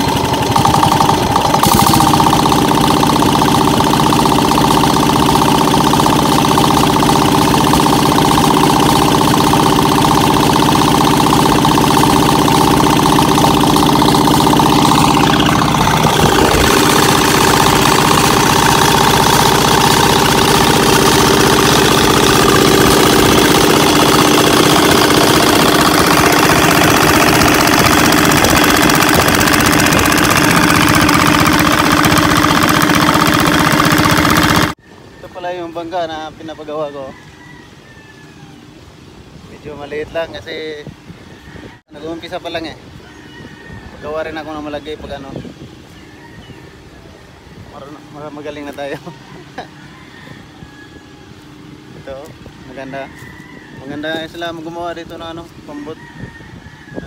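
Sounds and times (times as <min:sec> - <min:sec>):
diesel engine knocking: 0:00.0 - 0:34.8.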